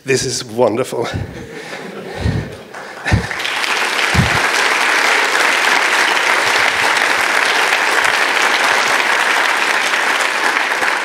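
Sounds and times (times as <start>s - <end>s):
audience applauding: 1.6s - 11.0s
short low thumps: 2.2s - 3.3s, 4.1s - 4.4s.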